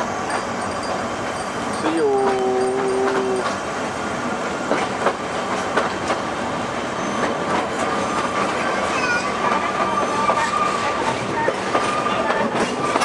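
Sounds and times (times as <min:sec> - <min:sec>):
train rumble: 0:00.0 - 0:13.0
train wheels clicking over rail joints: 0:00.0 - 0:13.0.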